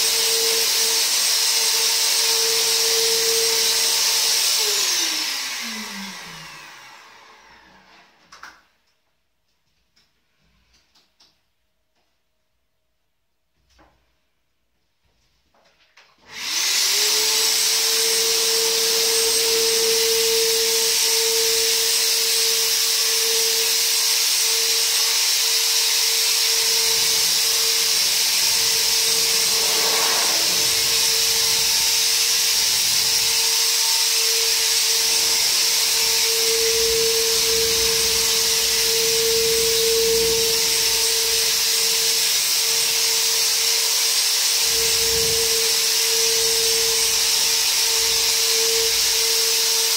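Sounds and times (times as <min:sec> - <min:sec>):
electric sprayer motor whining: 0:00.0 - 0:08.0, 0:16.2 - 0:49.9
airy spray hiss: 0:27.1 - 0:32.5.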